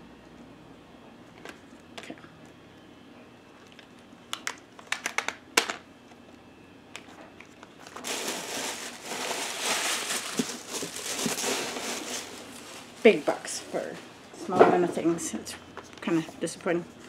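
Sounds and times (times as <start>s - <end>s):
packaging crinkling and rustling: 7.0s - 13.6s.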